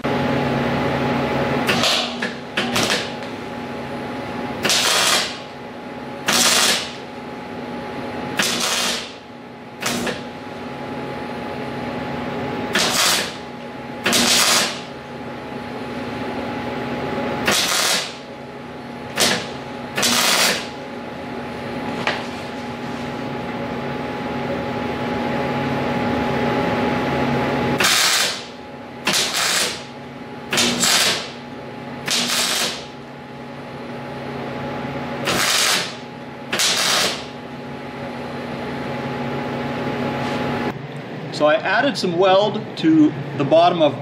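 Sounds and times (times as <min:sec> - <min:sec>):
steady hum: 0:00.0 - 0:44.0
welder crackling: 0:04.6 - 0:05.4, 0:06.3 - 0:07.0, 0:08.4 - 0:09.2, 0:09.8 - 0:10.2, 0:12.8 - 0:13.4, 0:14.1 - 0:14.9, 0:17.5 - 0:18.2, 0:19.2 - 0:20.7, 0:27.8 - 0:28.5, 0:29.1 - 0:29.9, 0:30.5 - 0:31.4, 0:32.1 - 0:32.9, 0:35.3 - 0:37.3.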